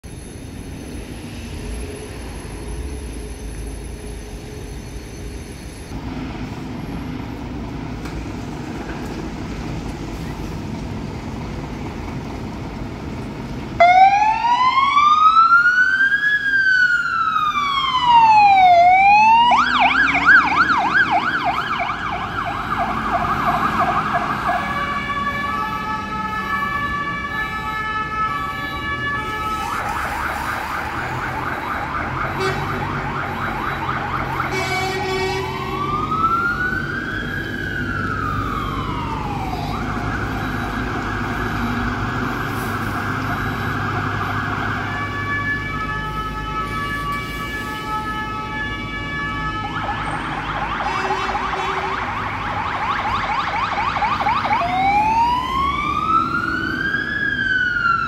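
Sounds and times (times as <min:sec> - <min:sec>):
street traffic: 0:00.0 - 0:58.0
fire engine siren wailing: 0:08.4 - 0:58.0
siren yelping: 0:13.8 - 0:58.0
air horn blaring: 0:32.2 - 0:33.2, 0:34.3 - 0:36.1, 0:50.7 - 0:52.2.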